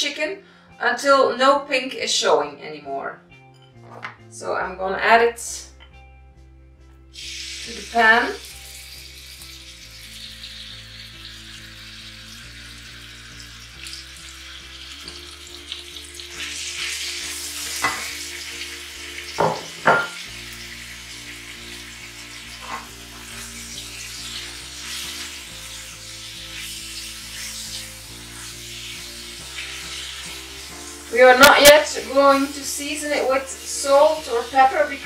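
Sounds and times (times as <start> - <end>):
chicken sizzling in oil: 7.1 - 35.0.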